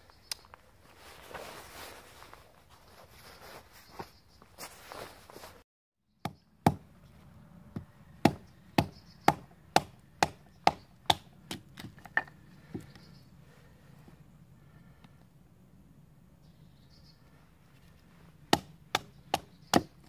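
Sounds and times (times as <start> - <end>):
sharp wooden knocks: 18.5 - 20.0.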